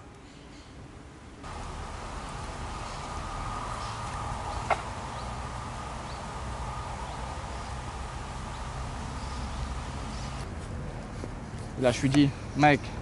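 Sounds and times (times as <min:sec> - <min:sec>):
low rumble with faint hum: 0:01.4 - 0:11.8.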